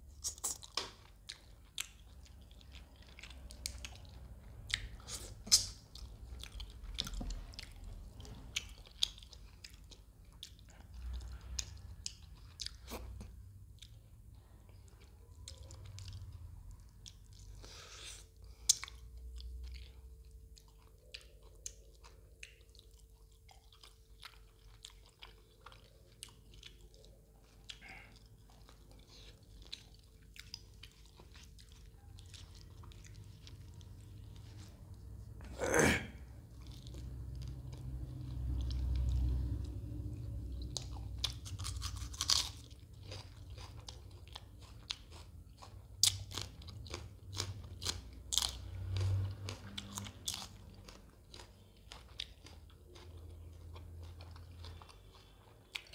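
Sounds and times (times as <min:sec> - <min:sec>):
chewing and biting flatbread: 0:00.0 - 0:35.5, 0:36.2 - 0:55.9
crunchy mouth clicks: 0:04.7 - 0:05.9.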